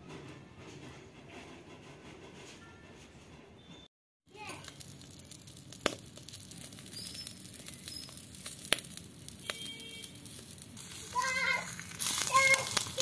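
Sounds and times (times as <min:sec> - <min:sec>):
egg sizzling in oil: 0:04.3 - 0:13.0
sharp oil pops: 0:04.6 - 0:09.7.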